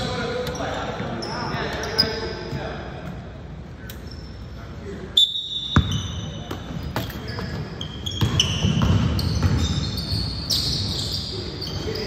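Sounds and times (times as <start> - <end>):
sneakers squeaking: 0.0 - 12.0
basketball bouncing on hardwood: 8.2 - 9.7.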